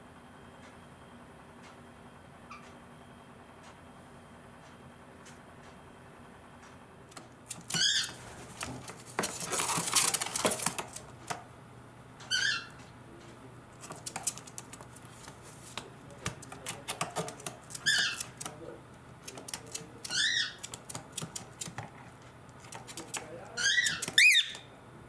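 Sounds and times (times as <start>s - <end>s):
rustling: 7.5s - 11.4s
cockatiel warbling chirps: 7.7s - 8.2s, 12.3s - 12.8s, 17.8s - 18.3s, 20.0s - 20.7s, 23.6s - 24.7s
quick sharp taps and clicks: 13.2s - 18.6s.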